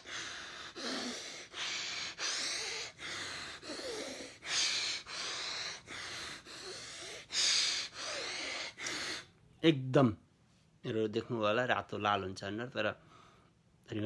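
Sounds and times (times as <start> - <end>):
rapid forceful nasal breaths: 0.0 - 9.3.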